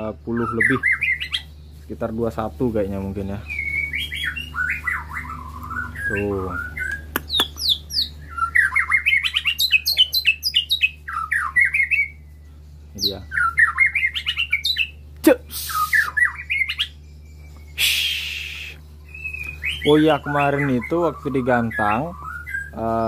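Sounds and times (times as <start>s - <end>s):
bird singing whistled notes: 0.0s - 23.0s
bird harsh hiss: 15.5s - 16.2s, 17.8s - 18.8s.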